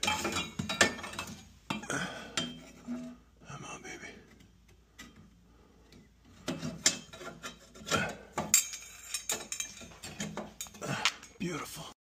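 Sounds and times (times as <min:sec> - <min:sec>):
sheet metal scraping and knocking: 0:00.0 - 0:03.3, 0:04.9 - 0:10.8.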